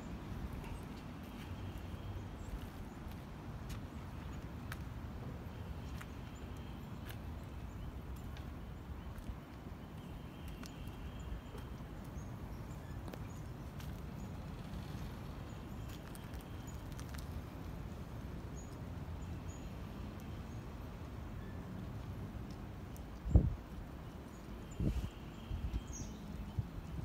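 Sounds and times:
footsteps through a garden: 0.0 - 17.7.

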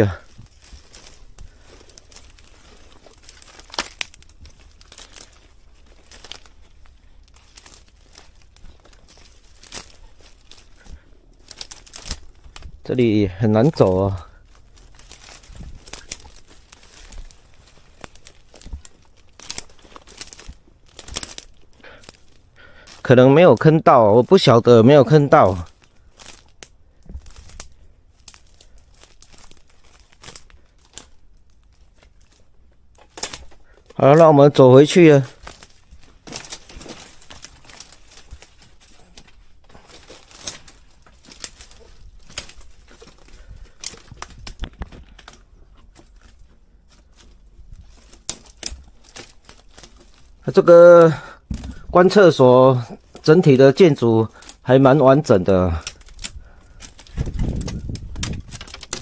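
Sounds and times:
footsteps through grass and brush: 0.0 - 59.0
sharp twig snaps: 3.2 - 5.4, 33.0 - 33.6.

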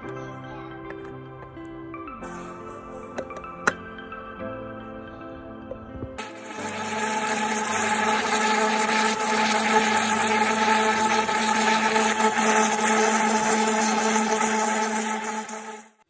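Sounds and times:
electric blender running: 6.2 - 16.0.

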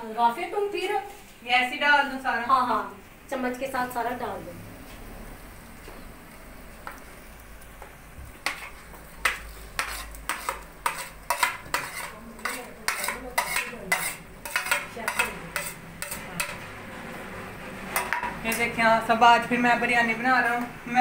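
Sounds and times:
metal spoon scraping on plate: 8.4 - 16.7.

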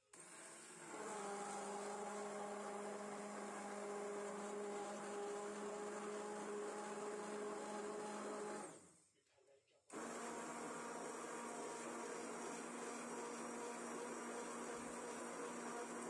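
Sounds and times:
stick blender motor whine: 0.1 - 8.9, 9.9 - 16.0.

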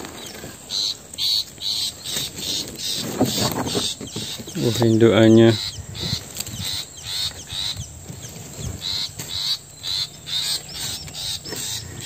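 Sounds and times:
bird giving short harsh calls: 8.8 - 12.0.

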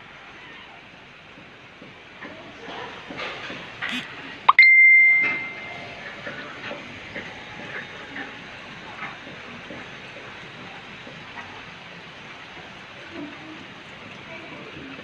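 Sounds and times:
high bell-like ding: 4.5 - 5.9.

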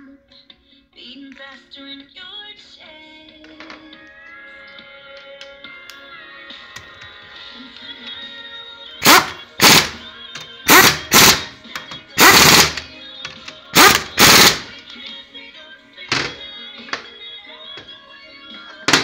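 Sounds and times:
pneumatic impact wrench rattling: 9.0 - 10.0, 10.7 - 11.5, 12.2 - 12.9, 13.8 - 14.7.

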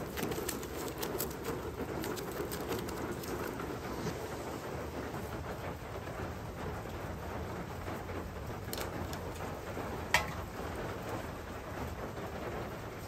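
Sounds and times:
steady rain: 0.0 - 13.0
frying pan clanking on stone: 10.1 - 10.5.

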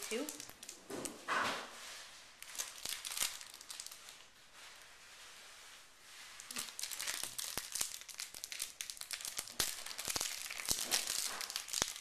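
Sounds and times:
foil wrapper crinkling: 0.0 - 1.2, 2.4 - 4.8, 6.3 - 12.0.

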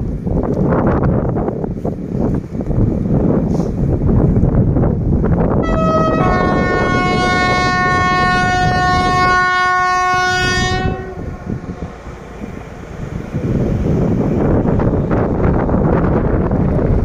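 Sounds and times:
wind buffeting microphone: 0.0 - 17.0
locomotive horn blasts: 5.6 - 11.9.

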